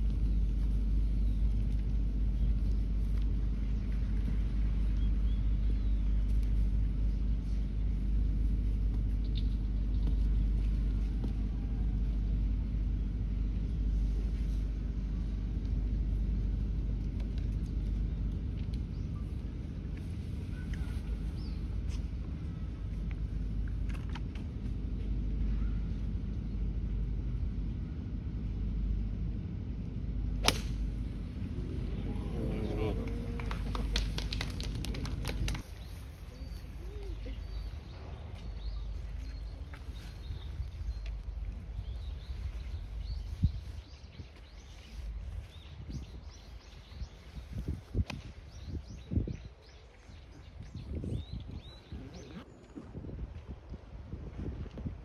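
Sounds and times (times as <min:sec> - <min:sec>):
low background rumble: 0:00.0 - 0:55.0
golf club striking ball: 0:30.4 - 0:30.9
wind buffeting microphone: 0:30.8 - 0:55.0.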